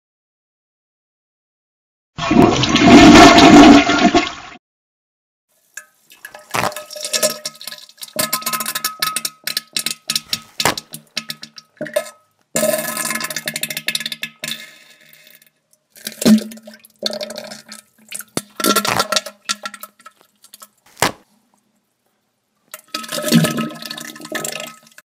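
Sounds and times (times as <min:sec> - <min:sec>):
toilet flushing: 0:02.2 - 0:04.6, 0:22.8 - 0:25.0.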